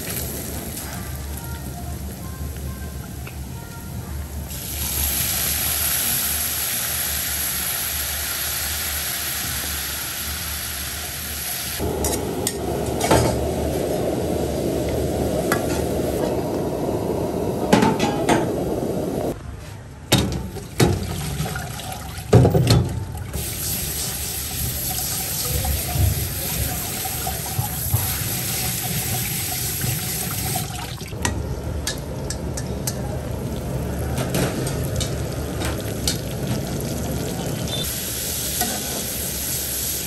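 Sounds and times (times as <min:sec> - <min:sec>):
garlic sizzling in oil: 0:04.5 - 0:16.3, 0:23.4 - 0:30.7, 0:34.7 - 0:40.0
boiling water bubbling: 0:11.8 - 0:19.4.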